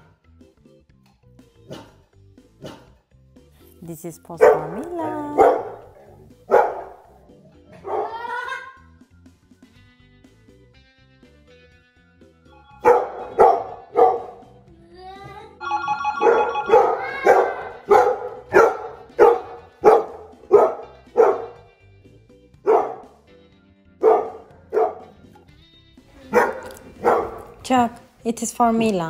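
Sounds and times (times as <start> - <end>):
dog barking: 1.6 - 2.0, 2.6 - 3.0, 4.4 - 7.0, 7.7 - 8.3, 12.8 - 14.5, 16.7 - 21.6, 22.6 - 23.1, 24.0 - 25.2, 26.2 - 27.6.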